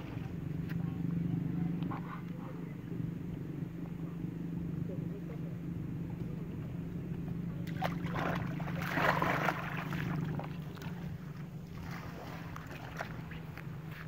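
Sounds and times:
steady low hum: 0.0 - 14.0
splashing in muddy water: 7.6 - 14.0.

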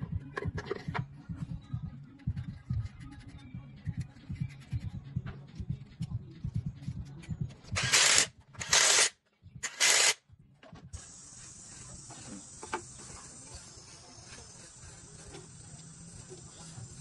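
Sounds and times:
loud hissing blasts: 11.0 - 17.0.

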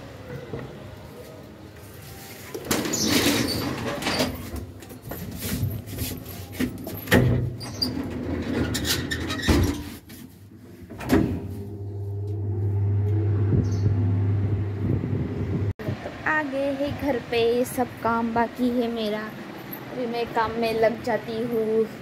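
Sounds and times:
elevator humming: 11.4 - 15.7.

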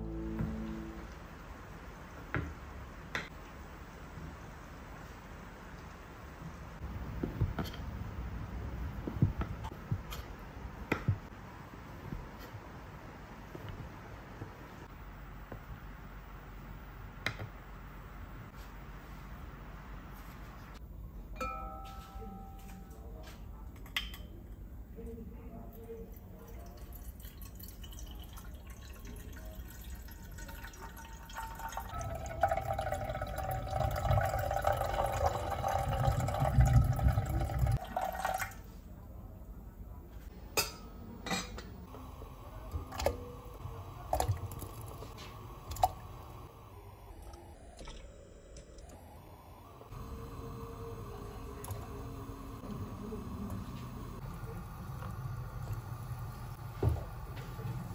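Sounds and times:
water pouring into glass pot: 26.4 - 38.6.

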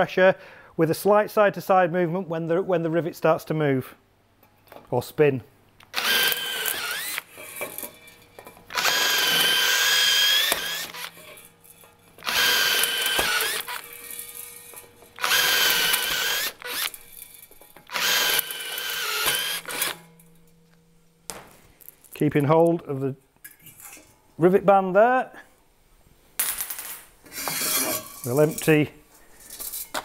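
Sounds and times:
cordless drill whining: 5.9 - 7.4, 8.7 - 11.2, 12.2 - 14.0, 15.2 - 17.0, 17.9 - 20.0.

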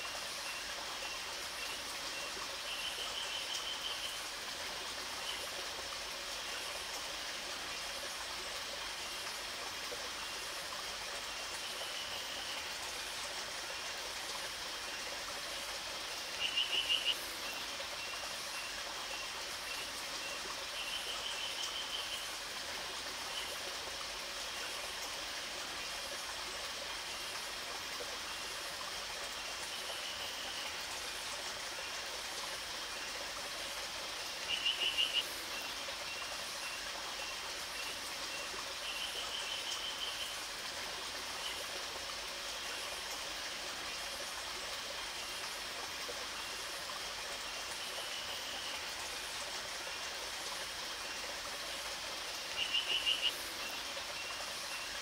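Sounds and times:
running water: 0.0 - 55.0
frog calling: 16.4 - 17.2, 34.5 - 35.4, 52.6 - 53.4.

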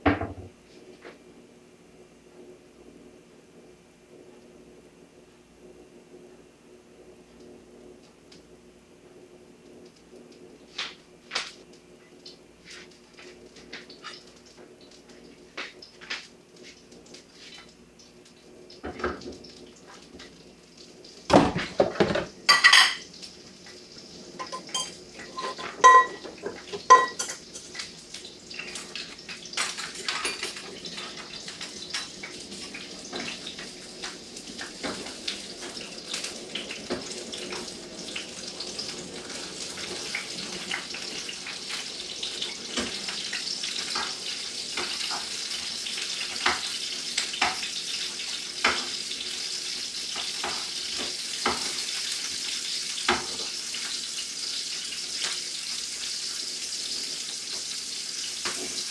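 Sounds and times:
sausages sizzling in hot oil: 9.7 - 58.9
kitchenware clattering: 21.3 - 23.1, 24.4 - 27.8, 29.6 - 31.2.

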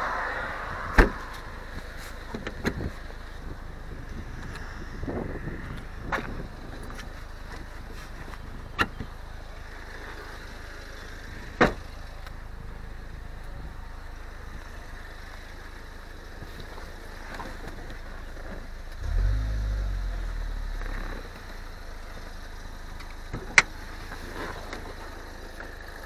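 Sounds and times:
low rumble: 0.0 - 2.6, 19.0 - 23.0.

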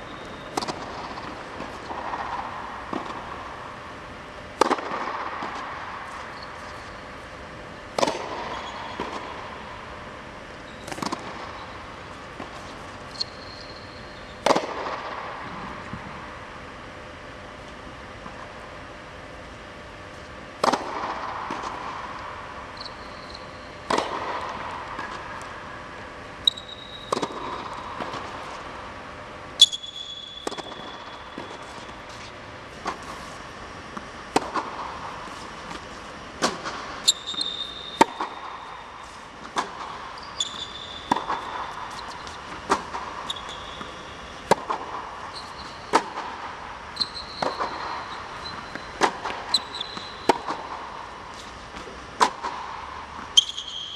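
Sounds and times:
tennis shoes squeaking: 6.1 - 7.2, 8.0 - 9.2, 10.6 - 14.5, 22.8 - 24.0, 26.4 - 28.6, 29.6 - 32.4, 37.0 - 46.1, 46.9 - 50.6, 53.3 - 53.9
tennis racket hitting ball: 7.9 - 9.4, 30.3 - 38.6, 39.3 - 46.4
ball bouncing on hard court: 7.9 - 9.6, 10.7 - 11.6, 12.4 - 16.0, 22.8 - 25.6, 26.4 - 28.6, 29.6 - 33.1, 33.9 - 38.7, 39.4 - 53.9.

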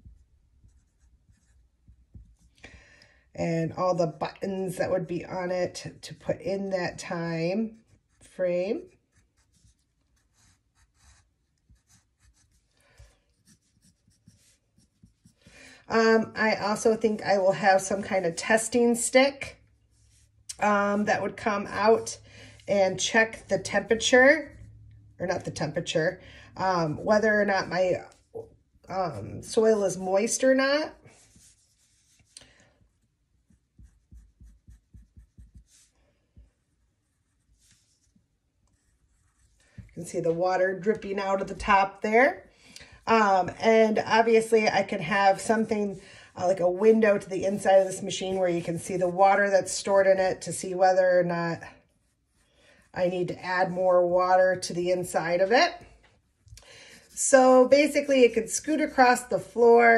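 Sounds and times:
pencil scratching on paper: 0.0 - 2.6, 3.8 - 18.9, 19.8 - 25.5, 29.0 - 41.8, 44.8 - 50.2, 56.9 - 59.9.

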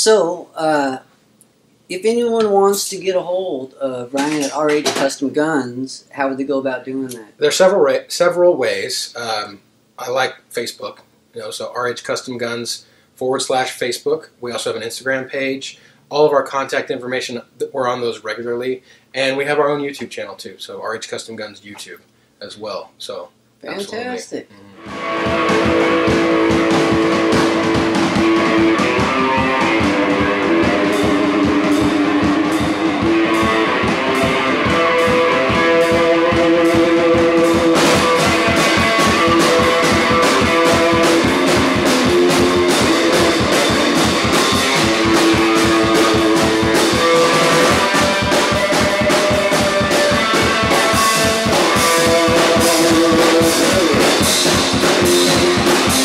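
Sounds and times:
steady drum beat: 4.2 - 5.4, 23.7 - 56.0
electric guitar lead notes: 23.6 - 56.0.

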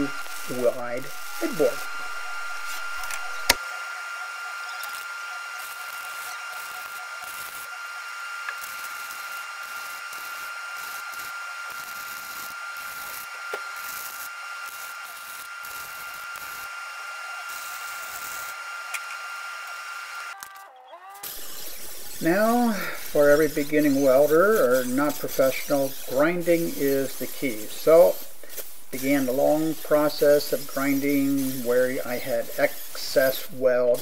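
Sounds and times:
thin steady whine: 0.0 - 20.4, 21.2 - 34.0
welding arc crackling sizzle: 0.0 - 34.0
sharp click: 3.0 - 3.6.

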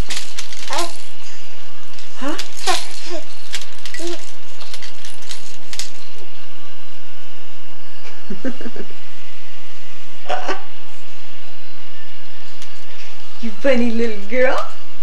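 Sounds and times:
baby cooing: 0.5 - 1.1, 2.1 - 4.4.

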